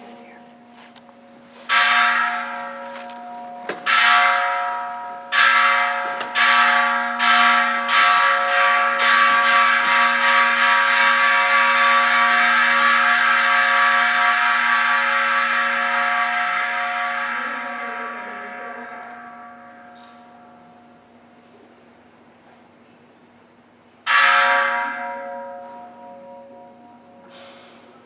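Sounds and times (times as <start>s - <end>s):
ritual bell struck repeatedly: 0.0s - 20.7s.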